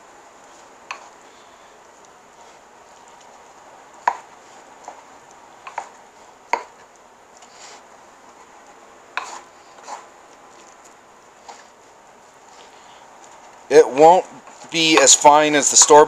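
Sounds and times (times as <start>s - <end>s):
pestle grinding corn: 2.3s - 15.3s
pestle knocking in mortar: 6.5s - 6.8s.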